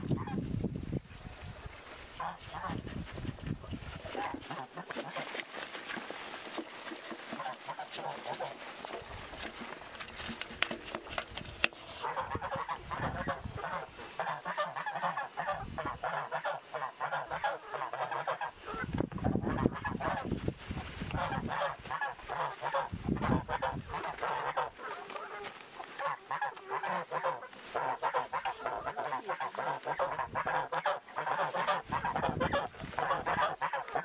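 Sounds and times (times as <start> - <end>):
fowl calling: 2.1 - 3.0, 7.2 - 9.2, 11.8 - 34.0.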